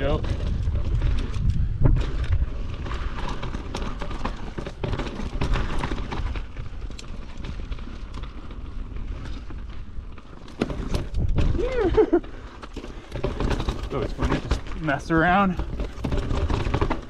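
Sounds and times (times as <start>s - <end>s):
wind rumble on microphone: 0.0s - 4.7s, 9.0s - 12.2s
bike clattering over stones: 0.0s - 17.0s
bike tyres crunching over gravel: 0.0s - 17.0s.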